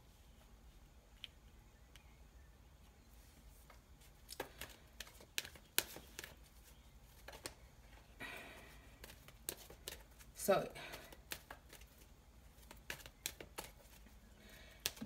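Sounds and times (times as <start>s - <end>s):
cards brushing and sliding: 3.1s - 14.2s
cards tapping on a tabletop: 4.3s - 6.4s, 9.0s - 10.0s, 11.1s - 11.9s, 12.6s - 13.9s, 14.8s - 15.0s.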